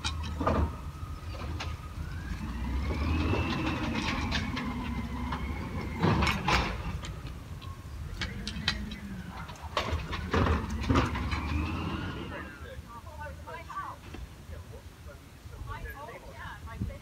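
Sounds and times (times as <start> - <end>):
truck engine revving: 0.0 - 7.5, 8.1 - 12.8
engine whine: 0.0 - 14.3.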